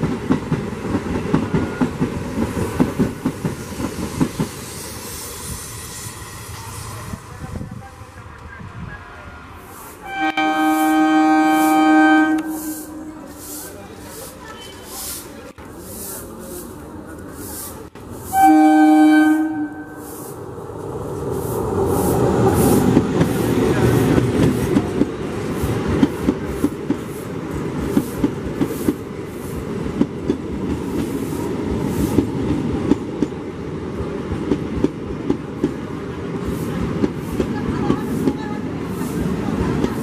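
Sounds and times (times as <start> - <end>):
train rumbling past: 0.0 - 40.0
train horn blast: 10.0 - 13.6, 18.3 - 20.2.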